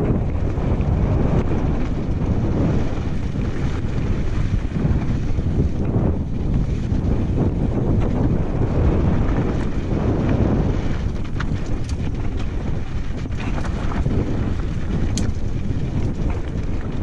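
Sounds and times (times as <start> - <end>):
wind buffeting microphone: 0.0 - 17.0
tyres rolling on stones: 9.4 - 17.0
sharp clicks and rattles: 11.0 - 17.0.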